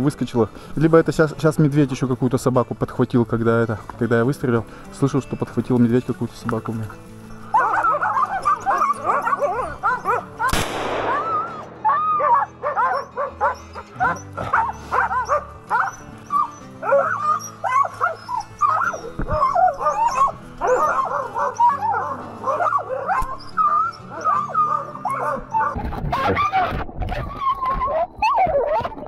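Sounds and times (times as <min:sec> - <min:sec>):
dogs barking and yelping: 0:07.1 - 0:29.0
rifle shot: 0:10.5 - 0:12.2.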